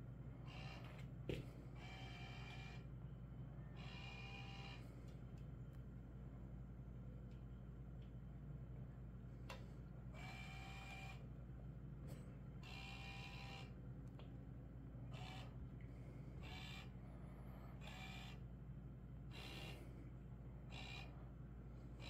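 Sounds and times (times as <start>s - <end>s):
steady low hum: 0.0s - 22.0s
small electric motor whirring: 16.4s - 16.9s, 19.3s - 19.8s, 20.7s - 21.1s.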